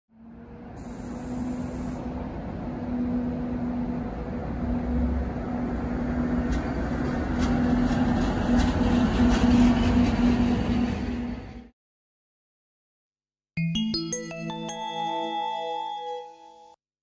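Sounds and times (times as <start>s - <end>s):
electric locomotive hum: 0.1s - 11.7s
train rumble: 0.2s - 11.7s
wheels clicking on rails: 6.3s - 11.2s.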